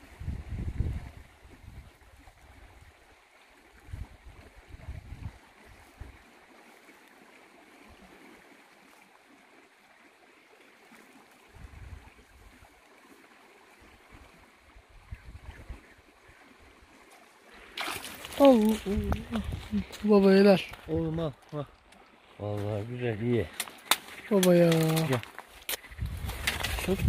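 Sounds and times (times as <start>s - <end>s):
stream flowing: 0.0s - 27.0s.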